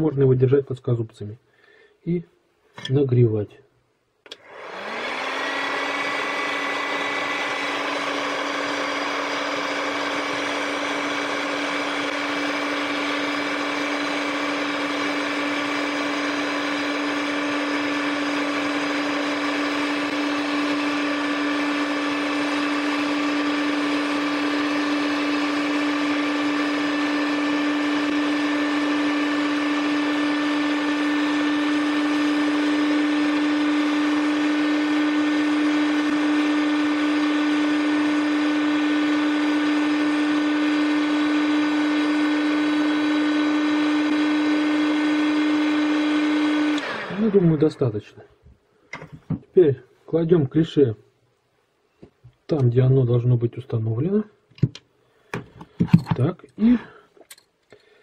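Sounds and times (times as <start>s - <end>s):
heat gun fan humming: 4.2s - 39.3s.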